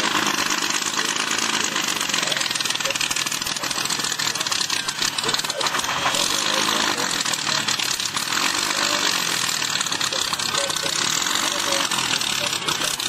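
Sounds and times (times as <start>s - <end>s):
piston aircraft engine throbbing: 0.0s - 13.0s.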